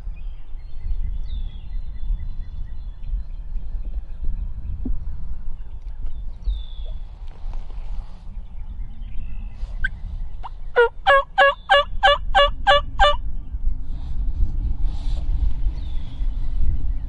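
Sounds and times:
steady low rumble: 0.0 - 17.0
turkey calling with rasping notes: 10.8 - 13.2.

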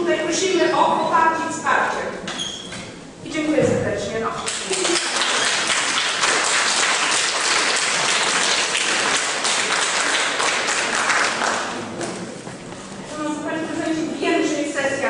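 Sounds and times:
crowd applauding: 4.5 - 12.2.

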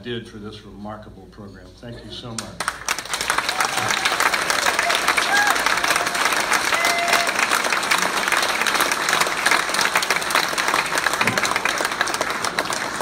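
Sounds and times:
audience applauding: 2.6 - 13.0.

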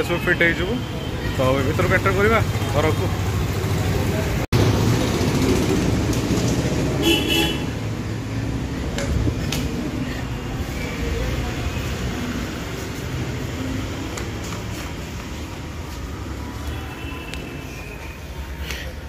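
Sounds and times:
street traffic noise: 0.0 - 19.0
vehicle horn toot: 7.0 - 7.8.

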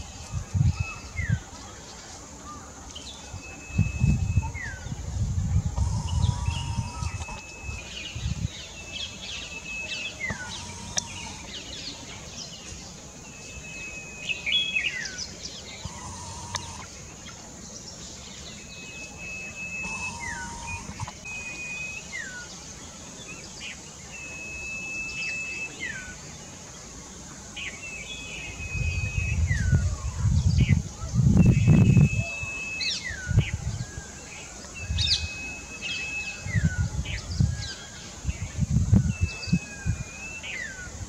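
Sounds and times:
songbird whistling: 3.3 - 5.0, 5.8 - 12.0, 13.3 - 16.9, 18.5 - 22.7, 23.3 - 26.2, 27.6 - 38.0, 39.0 - 41.0.

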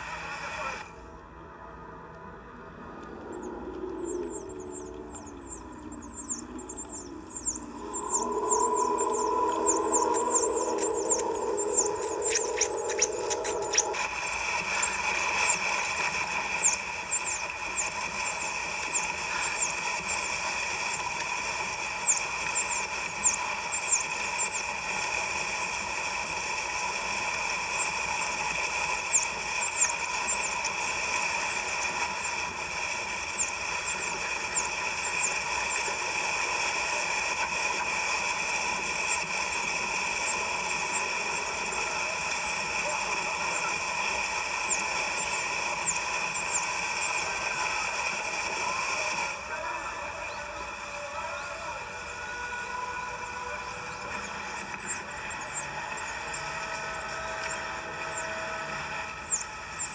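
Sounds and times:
steady hum: 0.0 - 49.8
dolphins whistling: 2.8 - 49.4, 53.6 - 59.9.

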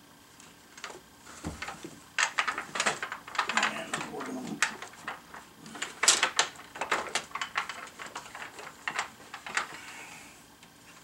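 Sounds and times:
wooden loom clacking: 1.6 - 9.8.

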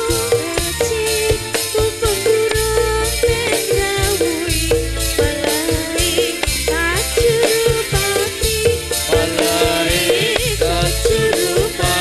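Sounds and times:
music with percussion beat and bass: 0.0 - 12.0.

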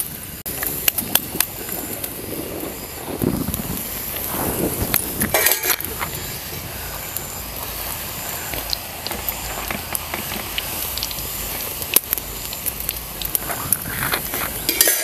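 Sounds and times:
deep-frying sizzling in oil: 0.0 - 15.0
metal spoon scraping pan: 14.7 - 15.0.

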